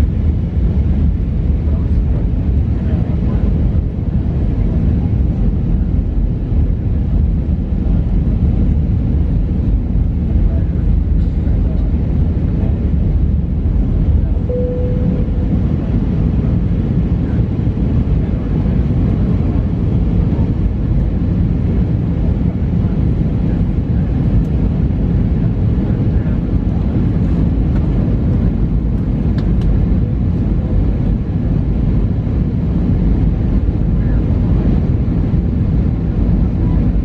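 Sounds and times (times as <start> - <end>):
aircraft engines rumbling: 0.0 - 37.0
short faint tone: 14.4 - 16.3.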